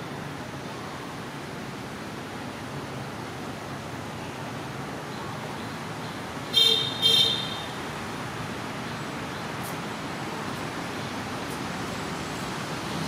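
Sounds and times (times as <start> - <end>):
steady background hiss: 0.0 - 13.0
vehicle horn beeps: 6.5 - 7.8.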